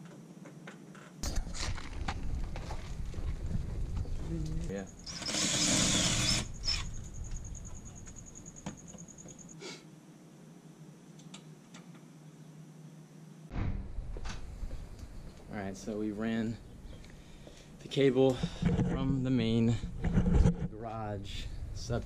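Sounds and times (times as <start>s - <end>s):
cordless driver driving screw: 5.1s - 6.9s.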